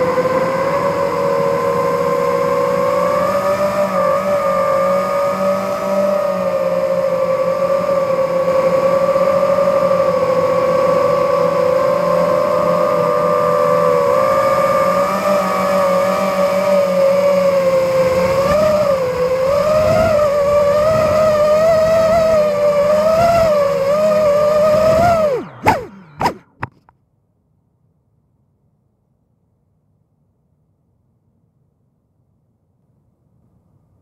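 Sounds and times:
drone motors whining: 0:00.0 - 0:26.9
motor blips: 0:08.7 - 0:26.9.

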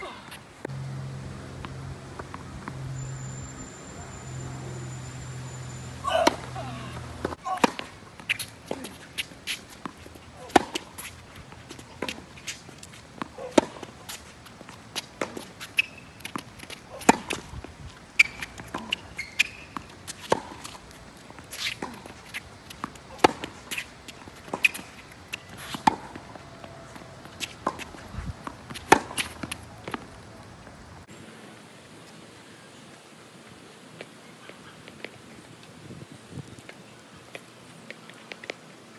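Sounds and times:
tennis balls bouncing on court: 0:00.6 - 0:03.2, 0:04.2 - 0:30.9
rackets hitting tennis balls: 0:01.5 - 0:03.0, 0:04.8 - 0:30.8
short high squeaks: 0:02.8 - 0:07.0, 0:15.6 - 0:16.3, 0:18.2 - 0:20.4.

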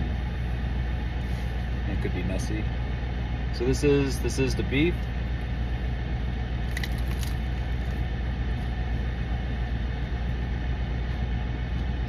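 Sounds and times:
idling engine hum: 0:00.0 - 0:12.0
crunchy taco shell bite: 0:06.6 - 0:08.0.

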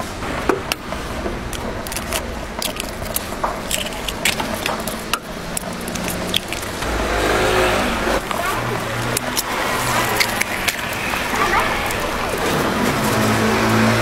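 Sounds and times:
street background noise: 0:00.0 - 0:14.0
eggs cracking: 0:00.7 - 0:06.8, 0:08.2 - 0:13.3.

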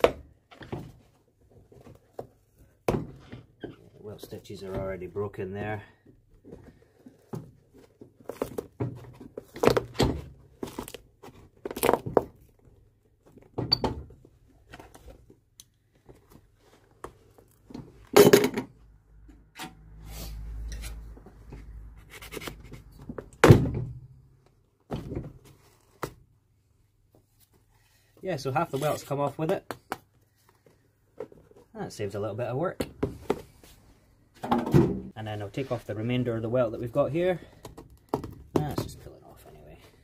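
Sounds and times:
leather sole tearing and knocking: 0:06.5 - 0:15.3, 0:37.6 - 0:38.9.

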